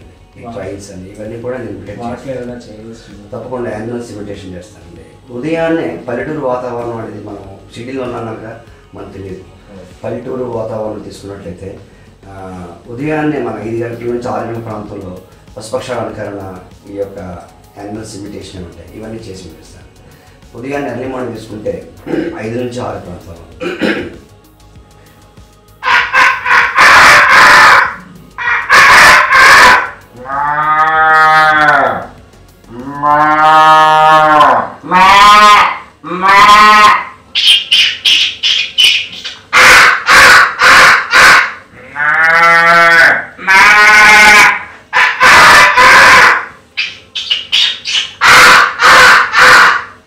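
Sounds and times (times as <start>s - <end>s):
man imitating cow moos: 25.8s - 37.2s, 41.7s - 46.5s
man imitating bird chirps: 32.7s - 41.4s, 43.6s - 49.8s.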